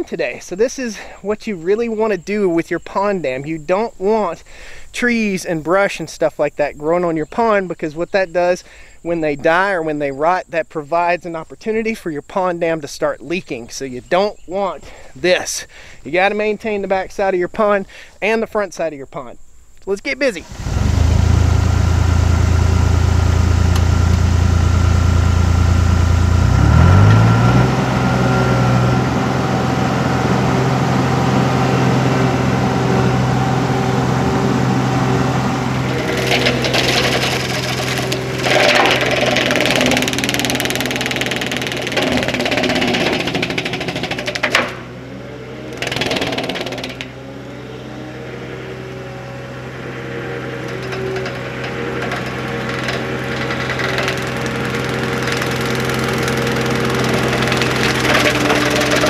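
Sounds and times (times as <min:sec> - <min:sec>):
diesel engine running: 0:20.4 - 0:59.0
cutter shredding brush: 0:26.1 - 0:59.0
brush cutter spinning: 0:35.8 - 0:44.9, 0:45.7 - 0:47.2, 0:50.8 - 0:59.0.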